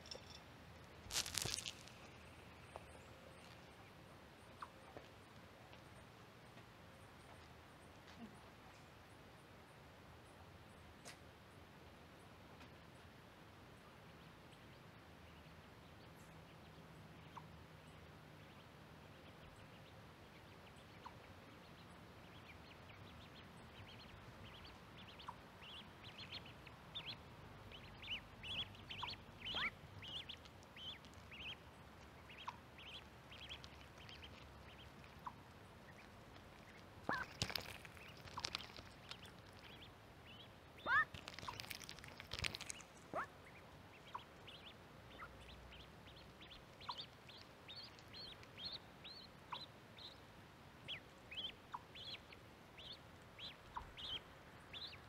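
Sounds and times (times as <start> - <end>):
ducklings peeping: 14.1 - 55.0
duck pecking clicks: 32.4 - 39.8, 40.9 - 43.2.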